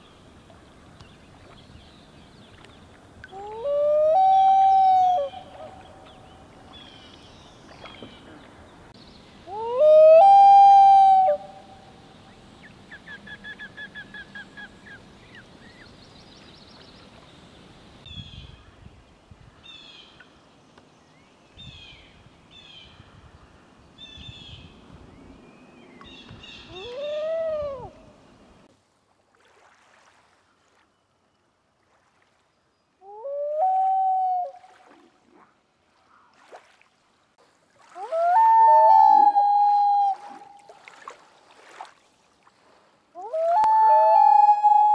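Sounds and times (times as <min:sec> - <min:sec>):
loon wailing calls: 0:38.0 - 0:40.6, 0:43.2 - 0:44.9.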